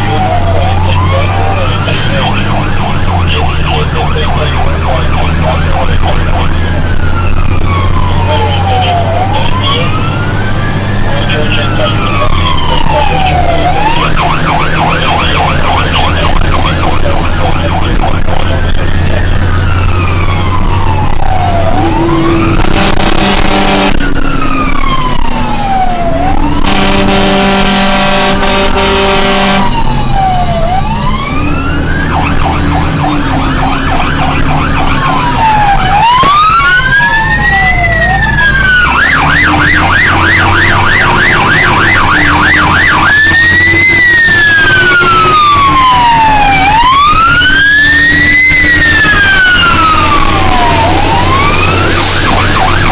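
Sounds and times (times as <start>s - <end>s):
electronic siren wailing and yelping: 0.0s - 52.9s
truck engine running: 0.0s - 52.9s
horn blaring: 11.3s - 31.5s, 38.0s - 52.9s.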